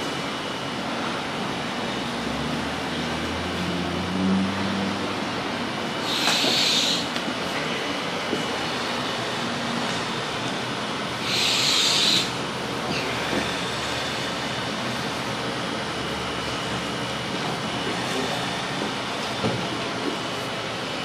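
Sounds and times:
breathy hiss: 0:06.0 - 0:07.1, 0:11.2 - 0:14.0.

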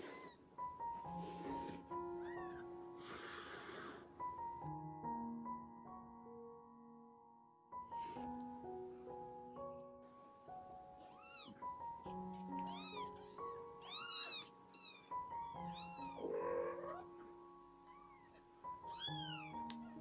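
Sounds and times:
soft piano music: 0:00.0 - 0:20.0
kittens mewing: 0:11.0 - 0:20.0.

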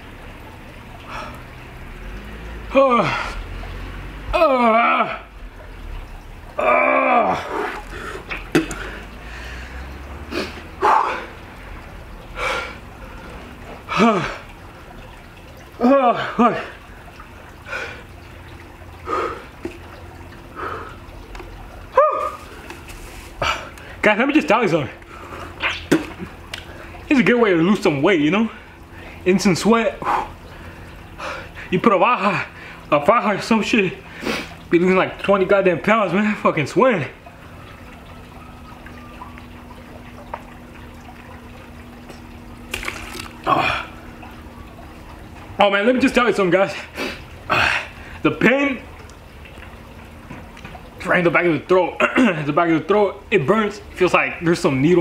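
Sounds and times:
low hum: 0:00.0 - 0:46.5
man breathing heavily: 0:07.4 - 0:11.4, 0:12.4 - 0:14.5, 0:19.0 - 0:19.6.

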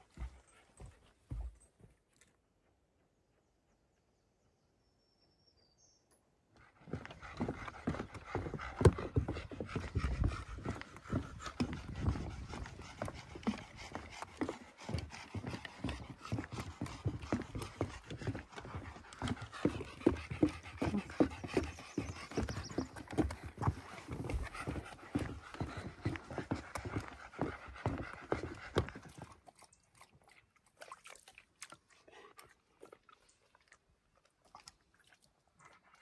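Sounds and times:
footsteps on forest trail: 0:00.0 - 0:02.1, 0:06.9 - 0:29.1
panting breath: 0:06.6 - 0:29.4.

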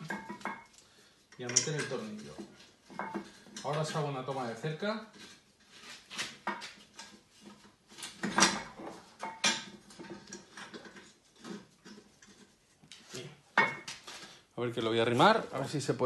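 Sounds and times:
metallic clinks and knocks: 0:00.0 - 0:00.8, 0:01.4 - 0:03.8.

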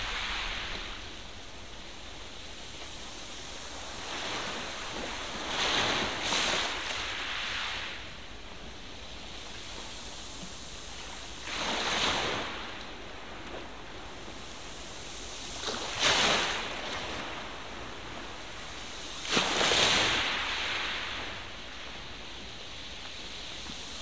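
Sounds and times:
steady hiss: 0:00.0 - 0:24.0.

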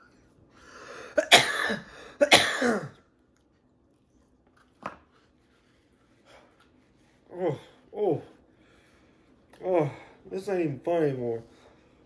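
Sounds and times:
man coughing hard: 0:01.1 - 0:03.0.

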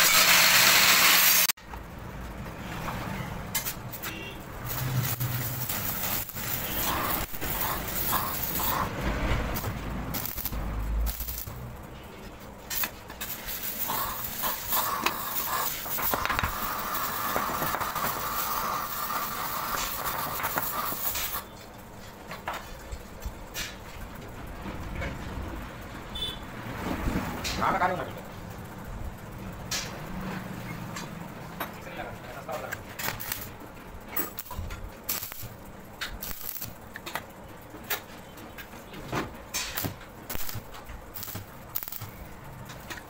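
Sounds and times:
arc welding crackling hiss: 0:00.0 - 0:01.6, 0:03.6 - 0:12.0, 0:12.6 - 0:21.5, 0:32.3 - 0:37.1, 0:39.5 - 0:42.9.

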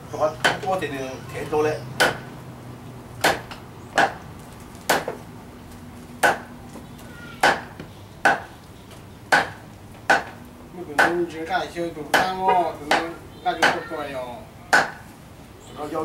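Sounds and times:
cleaver chopping meat on wood: 0:00.4 - 0:00.7, 0:02.0 - 0:02.3, 0:03.2 - 0:04.2, 0:04.8 - 0:05.2, 0:06.2 - 0:06.5, 0:07.4 - 0:08.6, 0:09.3 - 0:10.4, 0:11.0 - 0:11.2, 0:12.1 - 0:13.9, 0:14.7 - 0:15.0.

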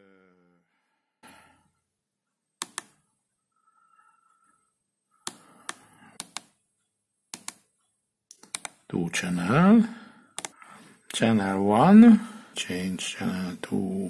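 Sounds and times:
push buttons clicking: 0:02.6 - 0:03.0, 0:05.2 - 0:06.6, 0:07.3 - 0:08.9, 0:10.4 - 0:10.6.

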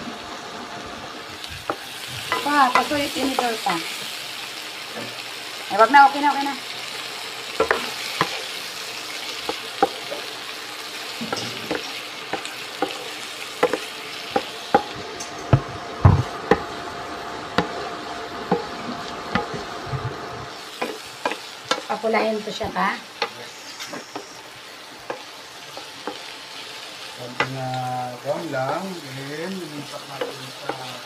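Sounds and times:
shrimp sizzling in butter: 0:00.0 - 0:31.0
wooden spatula knocking on pan: 0:13.6 - 0:16.7, 0:17.6 - 0:17.8, 0:18.4 - 0:20.2.

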